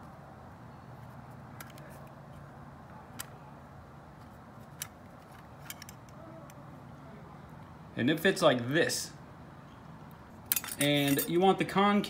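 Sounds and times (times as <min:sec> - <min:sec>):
metal parts clicking: 0:04.6 - 0:06.2, 0:10.5 - 0:11.3.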